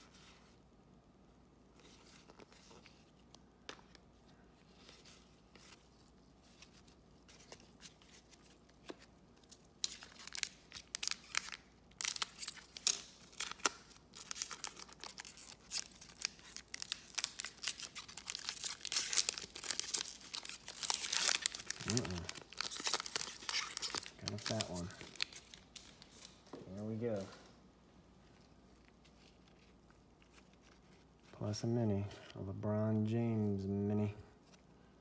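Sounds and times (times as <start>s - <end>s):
foil wrapper crinkling and tearing: 9.8s - 26.4s
plastic sleeve tearing: 9.8s - 26.4s.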